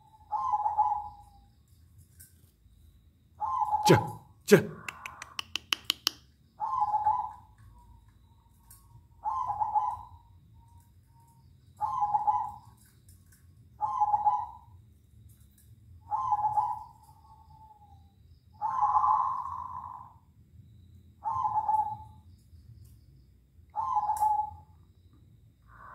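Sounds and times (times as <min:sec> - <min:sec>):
doves cooing: 0:00.0 - 0:01.4, 0:03.4 - 0:05.5, 0:06.6 - 0:07.9, 0:09.2 - 0:10.2, 0:11.8 - 0:12.9, 0:13.8 - 0:14.7, 0:16.0 - 0:17.8, 0:18.6 - 0:20.2, 0:21.2 - 0:22.2, 0:23.8 - 0:24.7.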